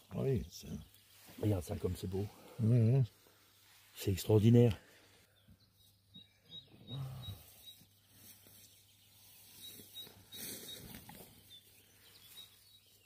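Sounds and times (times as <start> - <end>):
faint high chirp: 5.4 - 13.0.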